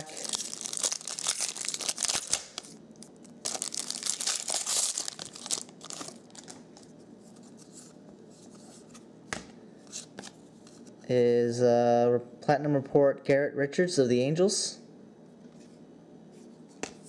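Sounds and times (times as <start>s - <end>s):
cards rustling: 0.0s - 2.8s, 3.4s - 9.0s
foil wrapper tearing and crinkling: 0.0s - 6.6s.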